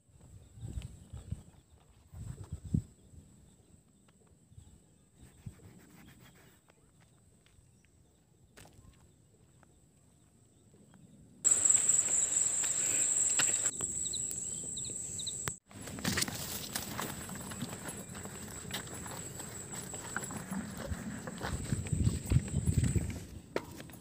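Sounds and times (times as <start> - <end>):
high insect drone: 11.5 - 15.6
loud high-pitched insect buzz: 11.5 - 15.6.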